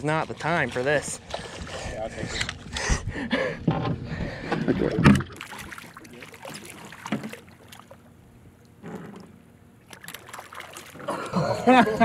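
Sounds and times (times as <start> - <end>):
water sloshing against hull: 0.0 - 2.8, 3.5 - 12.0
short water splashes: 4.5 - 11.4.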